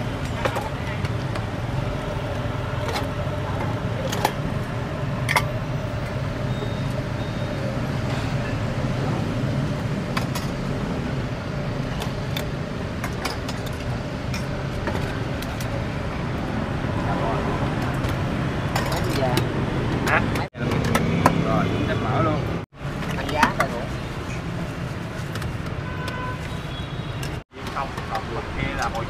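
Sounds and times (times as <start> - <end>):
utensils clinking on steel pot: 5.2 - 6.2, 17.9 - 19.5.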